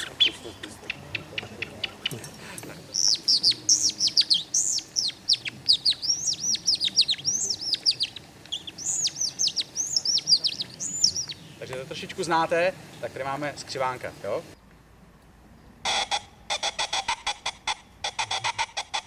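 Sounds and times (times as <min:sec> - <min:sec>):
bird lure chirping: 0:02.9 - 0:11.5.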